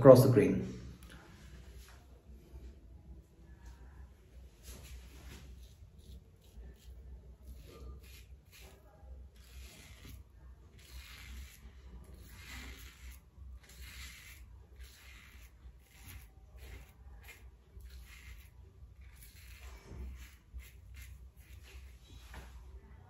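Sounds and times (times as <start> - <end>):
razor scraping stubble: 4.6 - 22.5.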